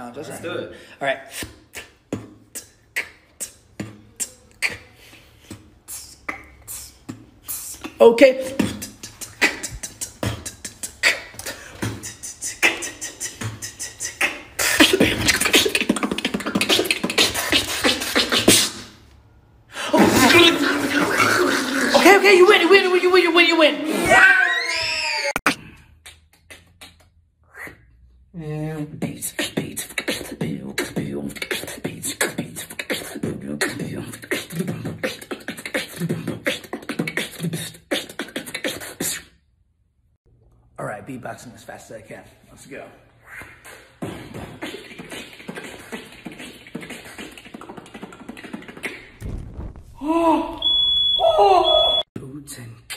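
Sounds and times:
beatboxing: 1.2 - 19.1, 19.9 - 23.4, 25.5 - 39.4, 43.2 - 49.2.

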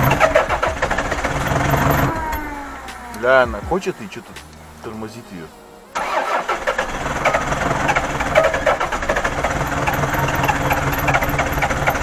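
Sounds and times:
car engine struggling to run: 0.0 - 3.5, 6.0 - 12.0.

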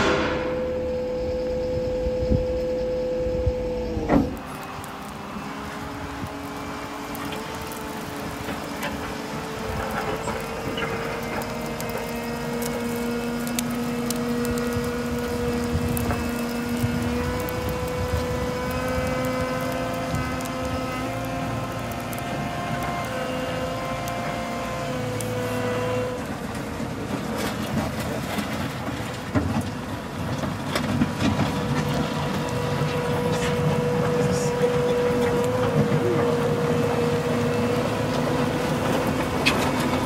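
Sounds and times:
high whine shifting pitch: 0.0 - 6.4
wheel loader engine humming: 0.0 - 40.0.

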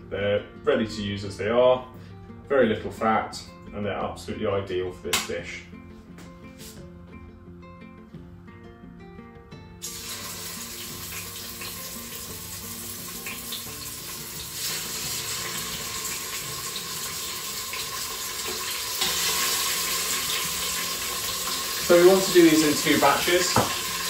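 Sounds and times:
meat sizzling in hot oil: 9.8 - 24.0.

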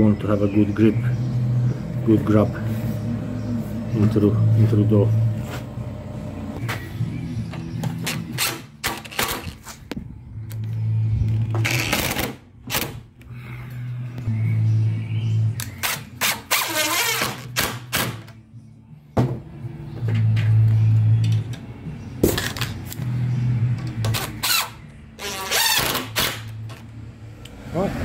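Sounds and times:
high squeaks: 15.8 - 17.5, 24.1 - 26.4.

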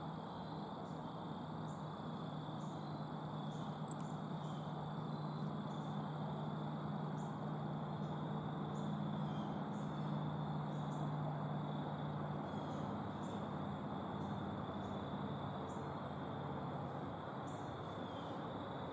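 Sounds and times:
low hum and hiss: 0.0 - 18.9
insect high trill: 1.6 - 16.2
short high insect chirps: 2.6 - 6.0.

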